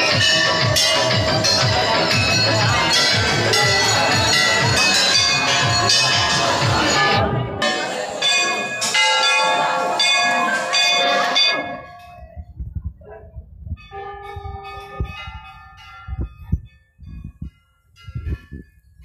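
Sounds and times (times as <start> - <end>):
metal bell clanging: 0.0 - 12.4, 13.7 - 19.0
low thumps: 12.0 - 18.8.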